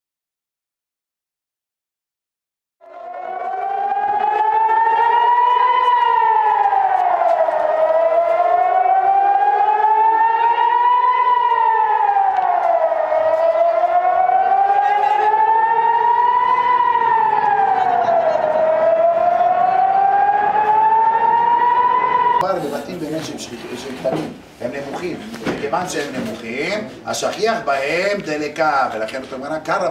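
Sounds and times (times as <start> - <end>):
air-raid siren wailing: 2.8 - 22.6.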